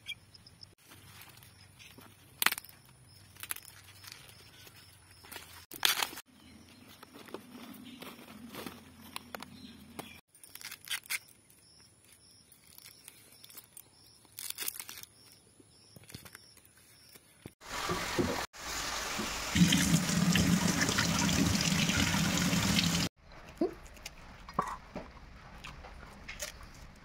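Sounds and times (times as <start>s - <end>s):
tap water running into sink: 17.6s - 23.1s.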